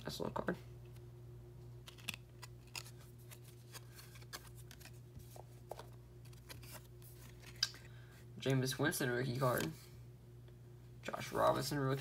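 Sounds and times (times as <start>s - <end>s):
faint low hum: 0.0s - 12.0s
trading cards handled and flipped: 1.7s - 8.6s, 9.3s - 9.8s.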